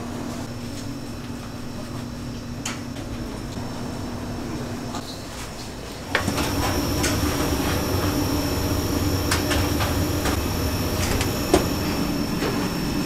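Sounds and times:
machine humming: 0:06.1 - 0:13.0.

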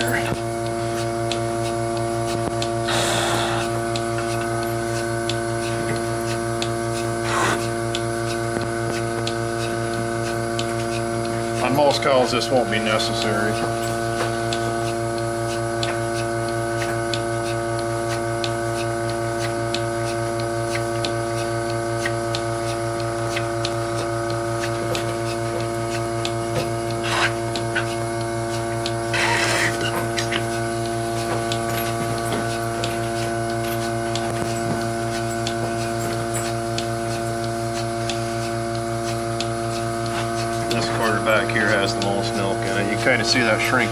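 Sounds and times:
milking machine pump hum: 0:00.0 - 0:43.9
air hissing: 0:02.8 - 0:03.8.

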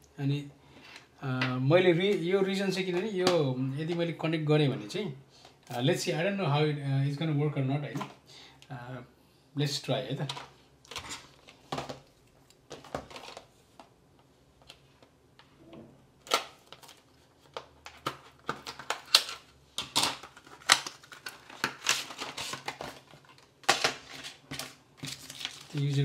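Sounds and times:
packaging rustling: 0:10.2 - 0:13.9, 0:16.2 - 0:26.0.

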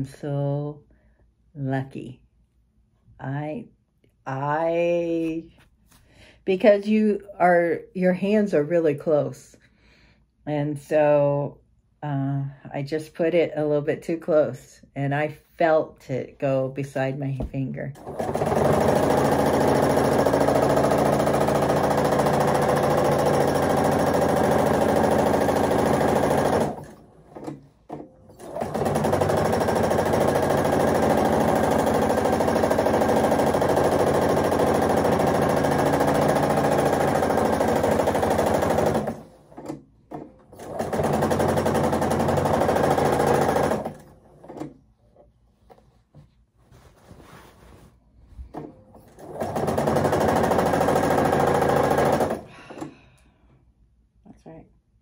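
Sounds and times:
sewing machine stitching: 0:18.0 - 0:44.8, 0:48.5 - 0:52.9.

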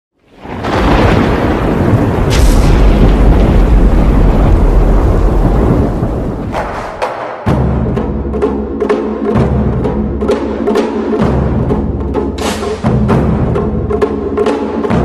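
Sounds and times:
thunder rumbling: 0:00.2 - 0:07.0
thunder crack: 0:00.2 - 0:07.6.

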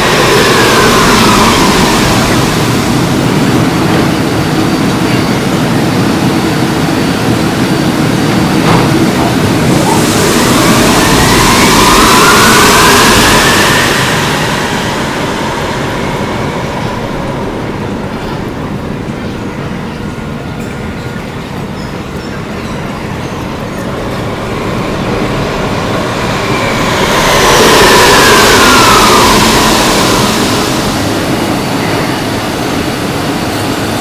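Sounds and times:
station rumble: 0:00.0 - 0:34.0
subway train motor whine: 0:00.0 - 0:34.0.

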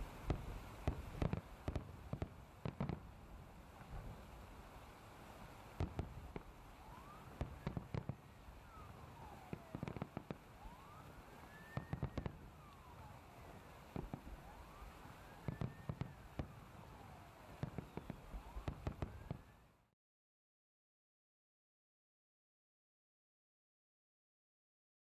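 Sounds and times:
fireworks bursting with sharp bangs: 0:00.0 - 0:19.8
siren wailing: 0:06.8 - 0:16.3, 0:16.9 - 0:19.6.

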